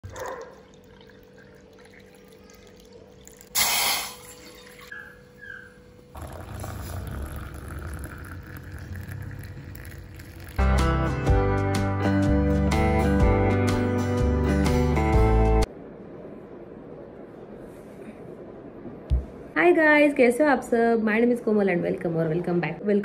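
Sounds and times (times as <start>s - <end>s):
water pouring into mug: 0.0s - 4.9s, 6.2s - 10.6s.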